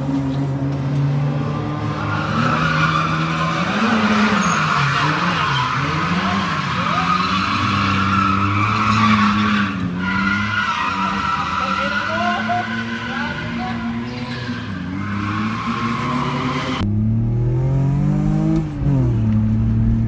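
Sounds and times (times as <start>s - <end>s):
car engine revving: 0.0s - 20.0s
tyres squealing: 1.9s - 16.8s.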